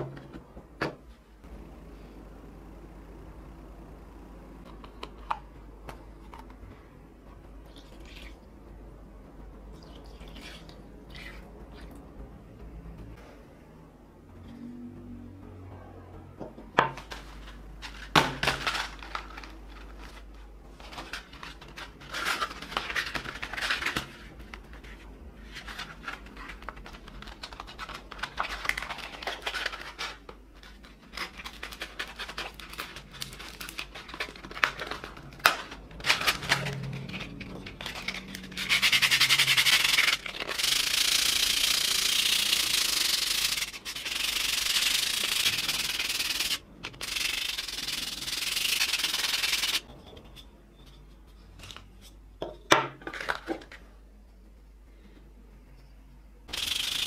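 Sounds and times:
sandpaper scrubbing metal: 0:38.1 - 0:49.8.

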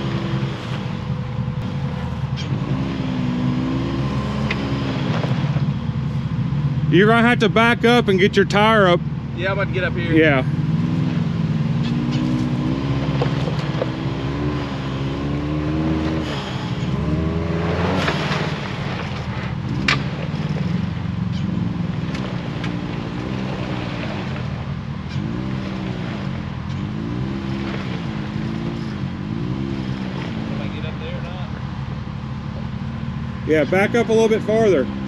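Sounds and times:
utility vehicle engine revving: 0:00.0 - 0:35.0.

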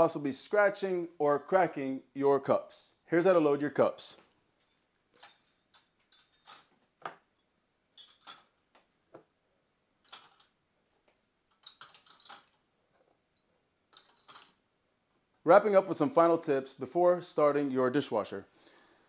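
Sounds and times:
mugs and glasses clinking: 0:04.7 - 0:06.7, 0:08.0 - 0:08.6, 0:10.0 - 0:10.6, 0:11.5 - 0:12.6, 0:13.9 - 0:14.6.

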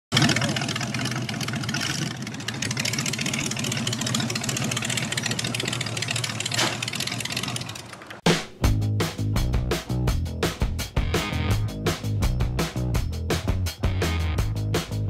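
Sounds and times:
truck engine running slowly: 0:00.2 - 0:08.2.

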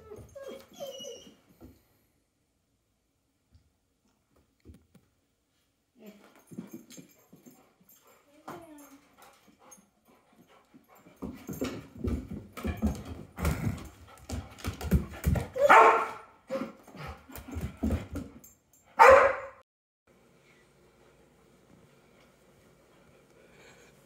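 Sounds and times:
puppy yipping and whimpering: 0:00.0 - 0:01.4
puppy barking: 0:15.6 - 0:16.3, 0:19.0 - 0:19.6.

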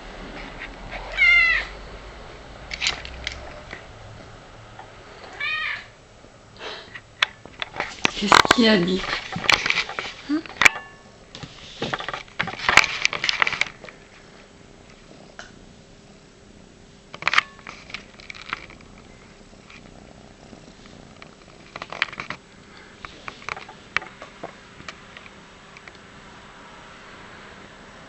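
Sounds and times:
cat purring: 0:13.3 - 0:25.1.

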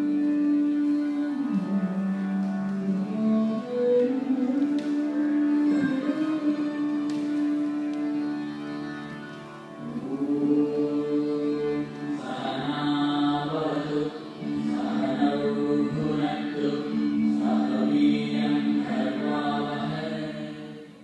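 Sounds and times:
choir-like singing music: 0:09.8 - 0:21.0.

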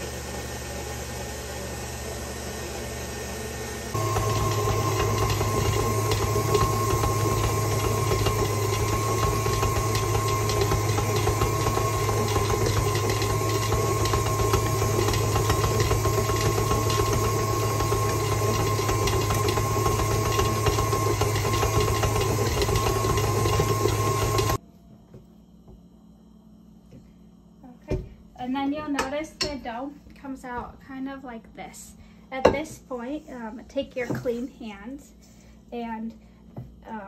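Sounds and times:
stand mixer motor humming: 0:00.0 - 0:24.6.

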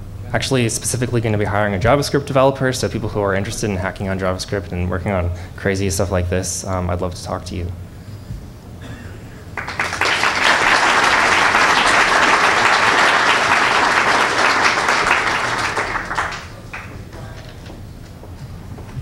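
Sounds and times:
audience applauding: 0:09.5 - 0:17.4.

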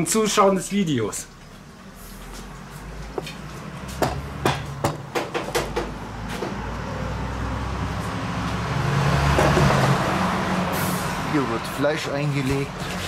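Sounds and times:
motor vehicle passing: 0:01.5 - 0:13.0
sharp knocks: 0:04.0 - 0:06.6.

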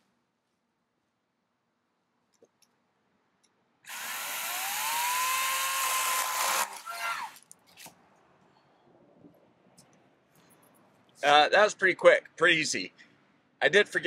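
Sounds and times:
electric chainsaw whining: 0:03.9 - 0:07.4.

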